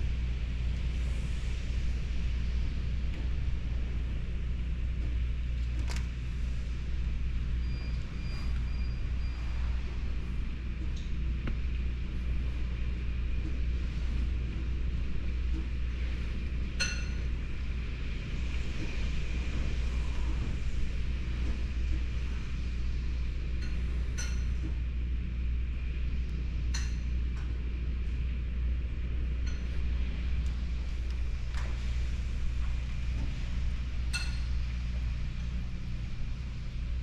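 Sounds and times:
storm wind and heavy rain: 0:00.0 - 0:26.6.

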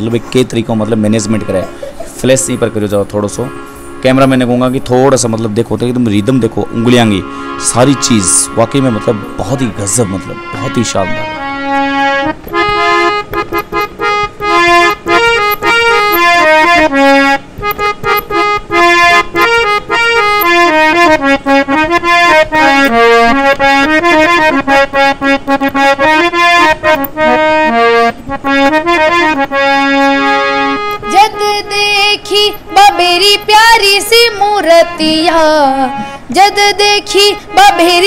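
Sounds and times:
harmonium melody: 0:00.0 - 0:38.0
boy singing: 0:31.0 - 0:38.0.

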